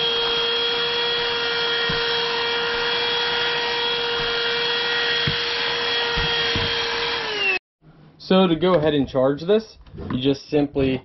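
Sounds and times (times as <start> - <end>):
handheld vacuum motor whine: 0.0 - 7.6.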